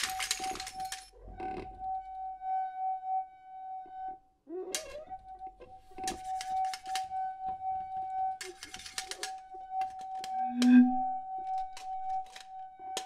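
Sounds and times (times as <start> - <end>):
clicks and clinks of small objects: 0.0 - 1.1
steady wavering held tone: 0.0 - 13.0
higher tone: 9.4 - 12.9.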